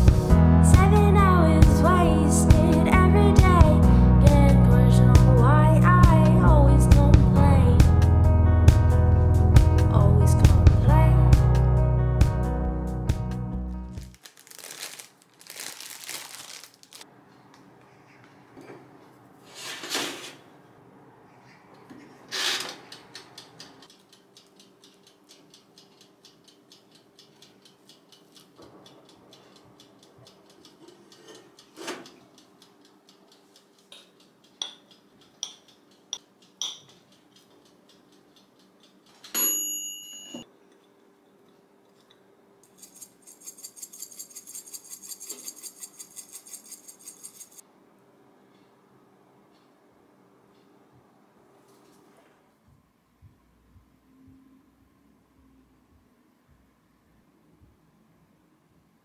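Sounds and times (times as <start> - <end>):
plastic bag crinkling: 14.0 - 17.0
timer bell ringing: 39.4 - 40.5.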